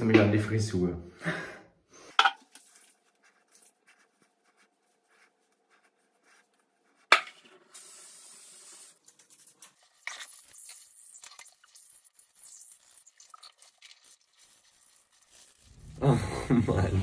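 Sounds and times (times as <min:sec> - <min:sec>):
aerosol hairspray hissing: 0:07.8 - 0:09.0.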